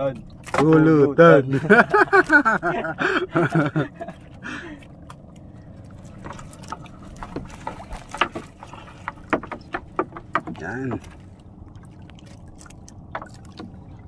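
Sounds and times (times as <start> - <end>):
fishing net rustling: 1.7 - 2.9, 5.0 - 13.6
small clicks and knocks: 6.2 - 11.2.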